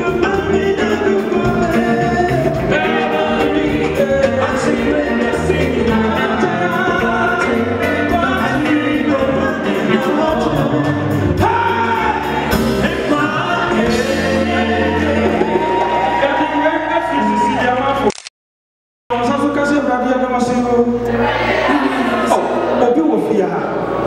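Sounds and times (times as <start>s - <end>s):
man singing gospel: 0.0s - 15.6s
band with drums and bass: 0.0s - 17.6s
backing singers: 0.0s - 17.8s, 21.1s - 22.9s.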